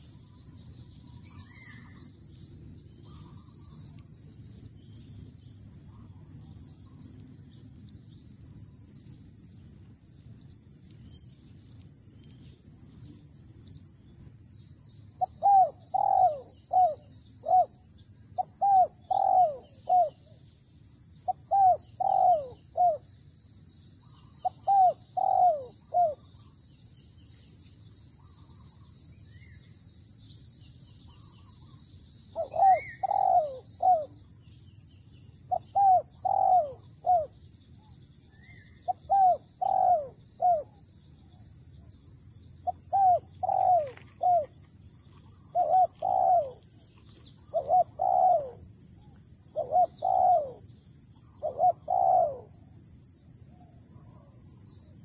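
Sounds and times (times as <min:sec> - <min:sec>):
dove cooing: 0:15.2 - 0:20.4, 0:21.2 - 0:23.0, 0:24.4 - 0:26.3, 0:32.4 - 0:34.2, 0:35.5 - 0:37.4, 0:38.9 - 0:40.8, 0:42.6 - 0:53.0.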